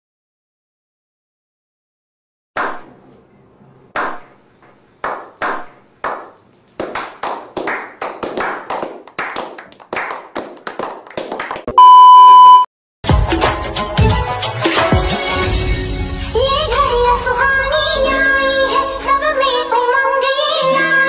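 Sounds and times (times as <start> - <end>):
slow hand claps: 5.0 - 11.7
applause: 6.0 - 11.8.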